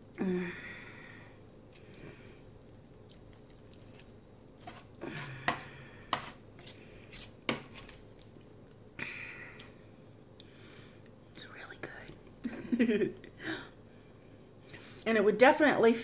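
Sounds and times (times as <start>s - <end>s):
spoon scraping foil tray: 4.6s - 8.0s.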